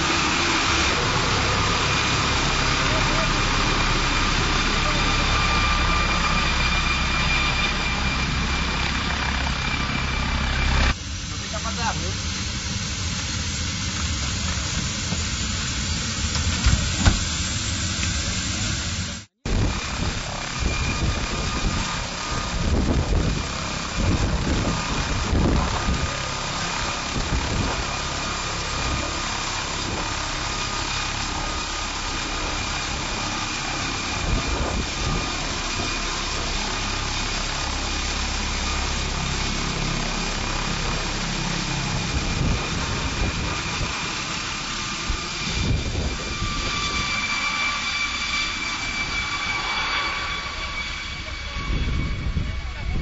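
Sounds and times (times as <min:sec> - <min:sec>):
helicopter rotor beat: 0:00.0 - 0:53.0
high turbine whine: 0:00.0 - 0:53.0.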